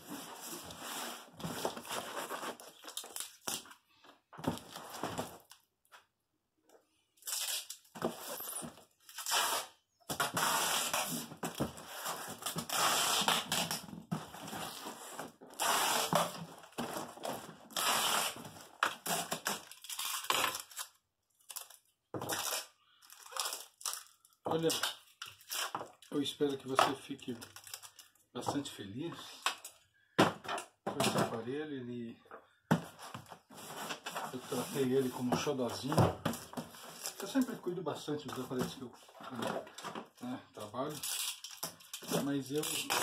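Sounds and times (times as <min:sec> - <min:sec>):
packing tape screeching off roll: 0:07.2 - 0:13.9, 0:14.5 - 0:16.4, 0:17.7 - 0:24.0, 0:24.6 - 0:25.9, 0:40.9 - 0:43.0
hands rubbing cardboard box: 0:33.5 - 0:35.4.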